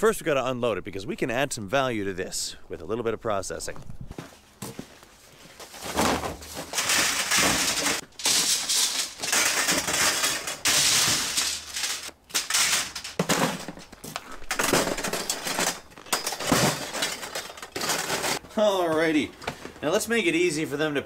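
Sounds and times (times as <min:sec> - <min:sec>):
copper pipes clattering: 0:05.6 - 0:18.5.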